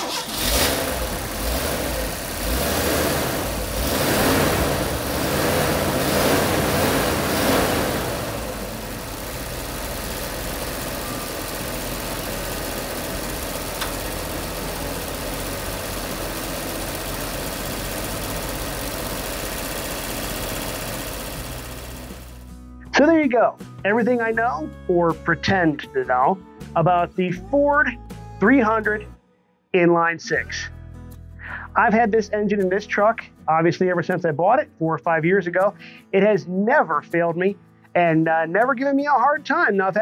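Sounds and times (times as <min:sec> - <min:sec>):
car engine idling: 0:00.0 - 0:22.5.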